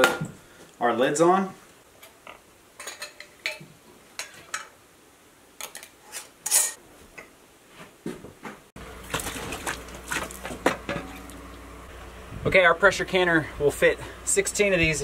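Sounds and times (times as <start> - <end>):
metal lids clinking on glass jars: 2.8 - 3.6, 5.6 - 6.8.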